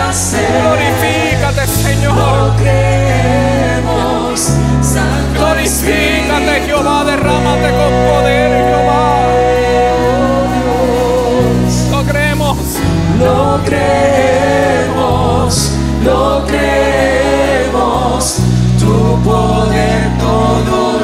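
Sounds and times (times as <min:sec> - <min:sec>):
choir singing gospel song: 0:00.0 - 0:21.0
sustained instrumental chords: 0:00.0 - 0:21.0.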